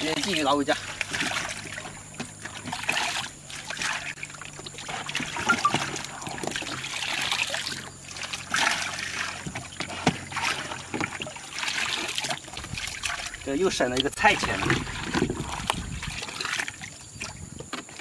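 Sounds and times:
water trickling through colander: 0.0 - 17.6
water sloshing and splashing: 0.0 - 18.0.

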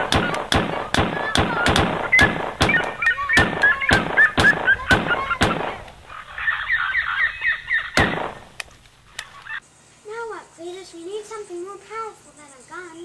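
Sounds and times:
handgun shots: 0.0 - 6.0, 7.9 - 9.3.

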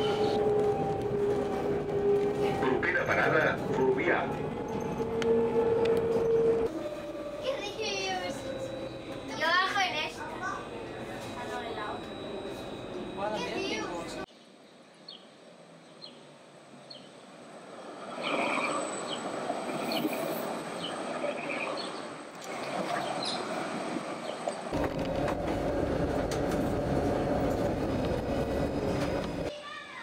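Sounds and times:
hum inside moving tram: 0.0 - 14.3, 22.4 - 29.5
tram rumbling on track: 0.0 - 14.3, 16.7 - 29.5.

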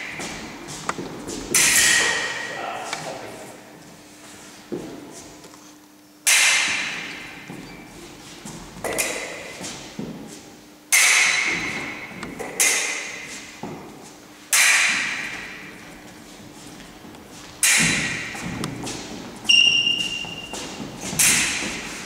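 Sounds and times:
feet striking wooden floor: 0.0 - 1.6, 6.7 - 10.5, 13.2 - 14.2, 15.0 - 22.0
fencing blades clashing: 0.0 - 3.1, 6.2 - 8.1, 8.8 - 10.2, 10.9 - 13.8, 14.5 - 22.0.

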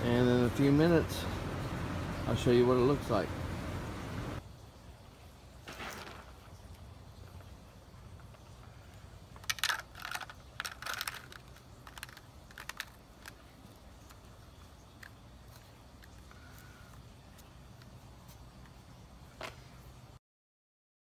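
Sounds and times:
pellets clattering into plastic cup: 9.4 - 13.0.

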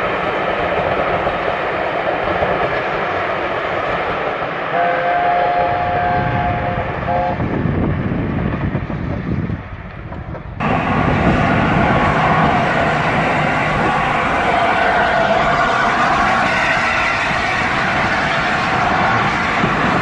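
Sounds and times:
train coaches rumbling past: 0.0 - 20.0
steam locomotive chime whistle: 4.7 - 7.4, 10.7 - 20.0.

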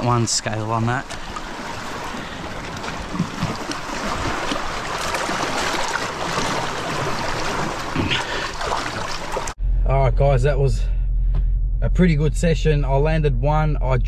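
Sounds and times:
water sloshing and splashing over rocks: 0.0 - 9.6.

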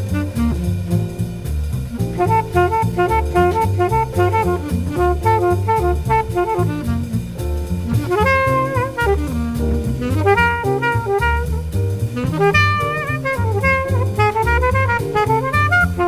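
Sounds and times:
drum kit: 0.0 - 16.0
horn-like lead melody: 0.0 - 16.0
walking bass line: 0.0 - 16.0.

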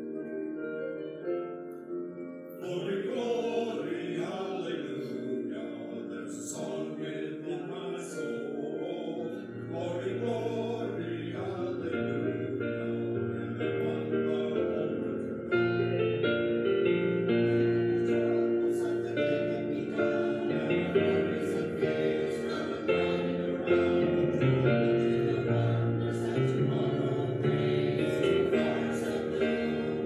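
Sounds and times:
voices singing: 2.5 - 30.0
sustained instrumental chords: 8.5 - 30.0.

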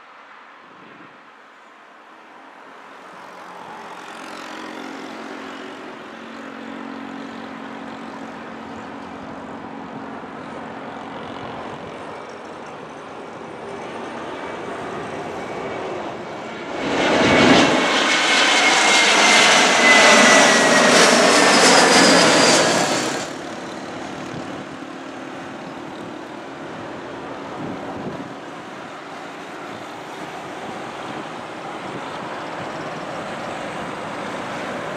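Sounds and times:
jet engines passing overhead: 2.2 - 34.9.

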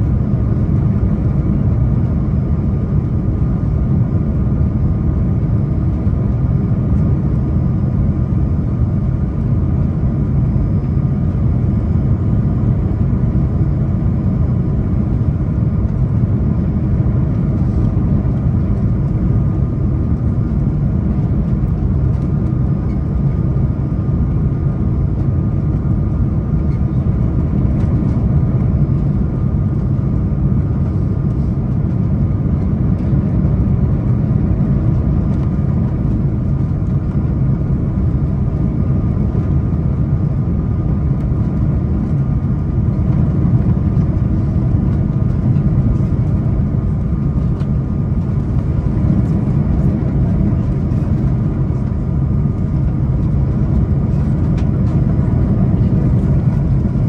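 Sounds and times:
aircraft cabin engine roar: 0.0 - 57.0
faint steady engine tones: 0.0 - 57.0.

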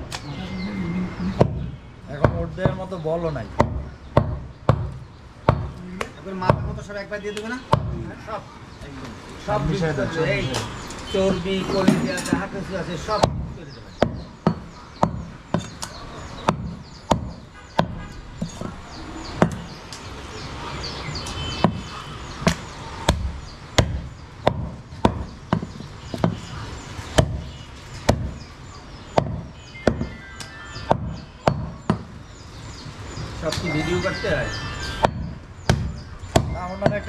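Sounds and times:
cleaver chopping meat on wood: 1.4 - 2.9, 3.5 - 8.0, 13.1 - 18.8, 19.4 - 19.8, 21.6 - 26.5, 27.1 - 28.5, 29.1 - 30.2, 30.8 - 32.2, 35.0 - 37.0.

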